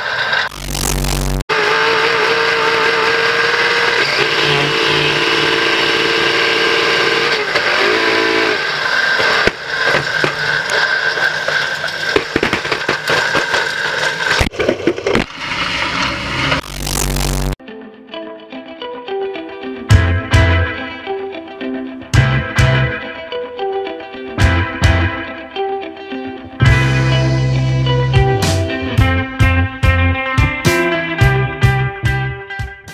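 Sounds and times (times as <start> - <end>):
race car engine at speed: 0.0 - 11.1
tv static burst: 0.2 - 1.4, 15.3 - 17.6.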